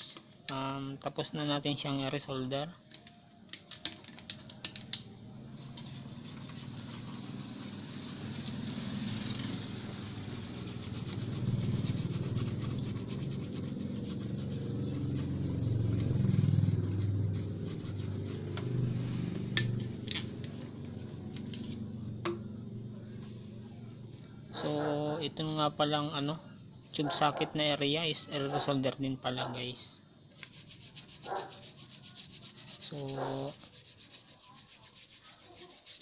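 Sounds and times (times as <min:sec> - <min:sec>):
low engine-like rumble: 0:04.9 - 0:25.4
brush scraping circuit board: 0:05.5 - 0:18.6, 0:30.4 - 0:36.0.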